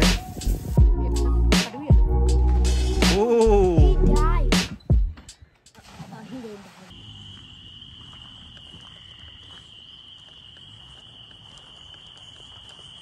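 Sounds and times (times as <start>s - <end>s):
crickets trilling: 6.9s - 13.0s.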